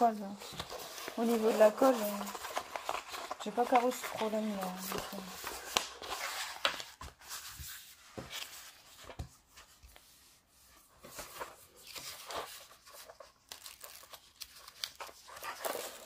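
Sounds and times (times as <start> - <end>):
rustling plastic sheet: 0.0 - 9.1.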